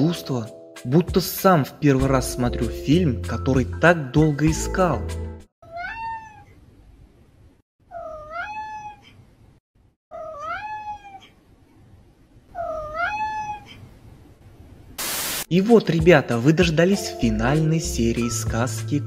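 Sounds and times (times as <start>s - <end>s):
cat meowing: 5.6s - 6.6s, 7.9s - 9.2s, 10.1s - 11.4s, 12.5s - 13.9s.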